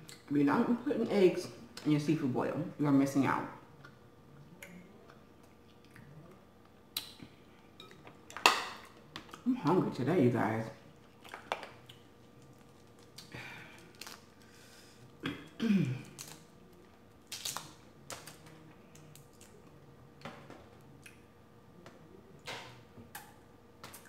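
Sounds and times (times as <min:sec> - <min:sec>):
chewing and lip smacks: 0:03.8 - 0:08.4.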